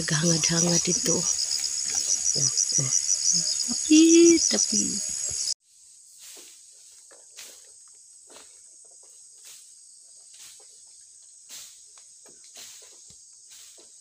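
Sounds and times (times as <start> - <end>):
insect chorus chirring: 0.0 - 5.6.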